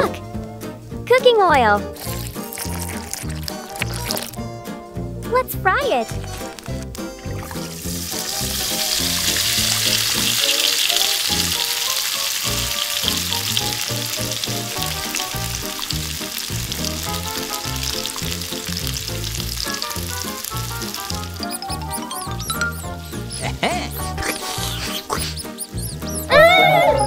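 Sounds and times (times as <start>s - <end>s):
fish frying in hot oil: 2.0s - 4.4s, 6.4s - 22.5s.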